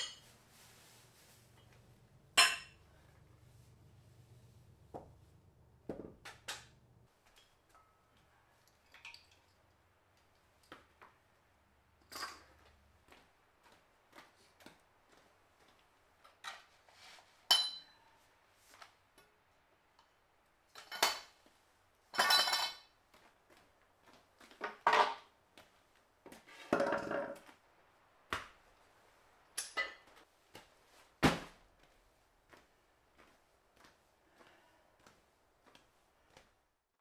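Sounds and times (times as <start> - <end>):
weight plates clinking and knocking: 2.4 - 2.8
scraping on concrete floor: 26.3 - 27.6.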